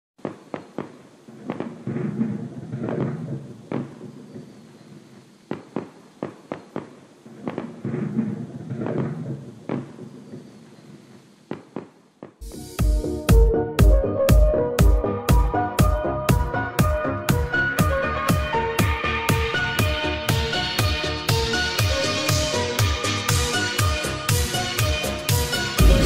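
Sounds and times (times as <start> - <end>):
crackling: 0.2 - 12.4
firework bangs: 0.2 - 12.7, 25.6 - 26.0
electronic music with heavy beat: 25.7 - 26.0.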